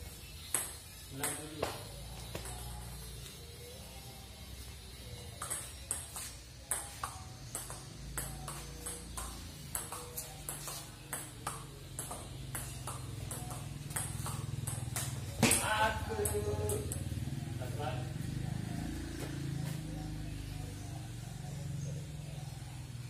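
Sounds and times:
table tennis ball clicking: 5.4s - 15.6s.

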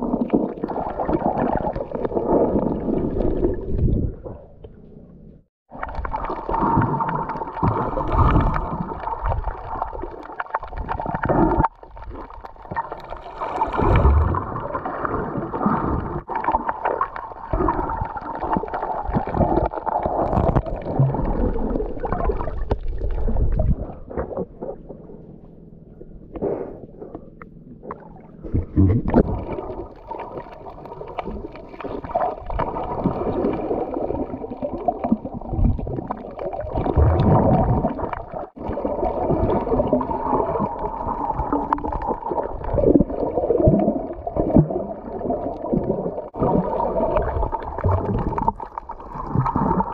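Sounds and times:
muffled underwater rushing and gurgling: 0.0s - 4.7s, 5.7s - 49.9s.

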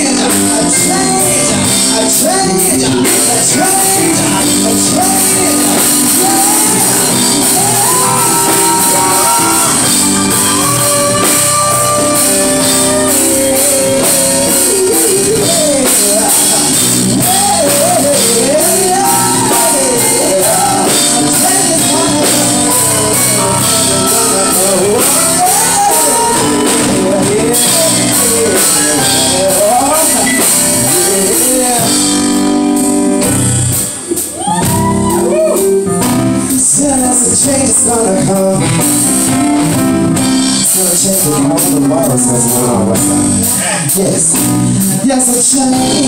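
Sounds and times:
person singing: 0.0s - 39.7s, 40.4s - 46.0s
drum kit: 0.0s - 46.0s
electric guitar: 0.0s - 46.0s
keyboard: 0.0s - 46.0s.

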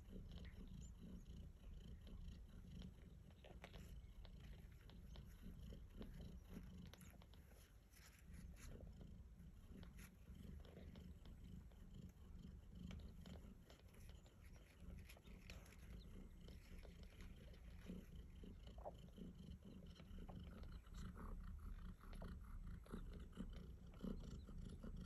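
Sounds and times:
cat purring: 0.0s - 25.0s.

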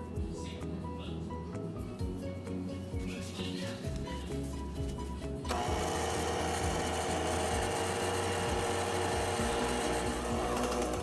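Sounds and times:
electric hand mixer running: 5.5s - 11.0s.

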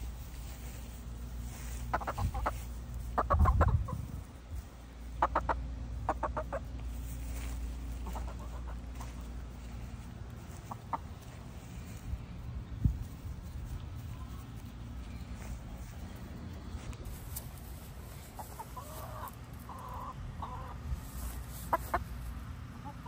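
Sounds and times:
low microphone rumble: 0.0s - 18.4s
chickens clucking: 0.0s - 23.0s.

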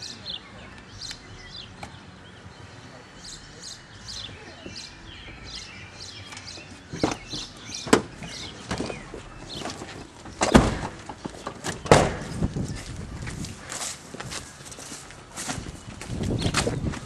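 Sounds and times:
car doors shutting: 6.3s - 12.4s.

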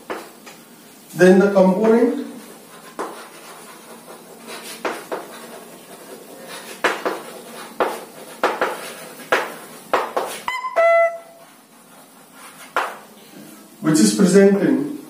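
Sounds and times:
chalk tapping and scratching: 0.0s - 0.6s, 1.8s - 10.5s, 11.3s - 13.1s.

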